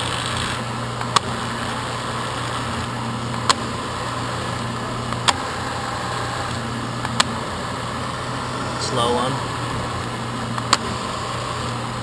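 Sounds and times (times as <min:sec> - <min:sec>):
drill press motor hum: 0:00.0 - 0:12.0.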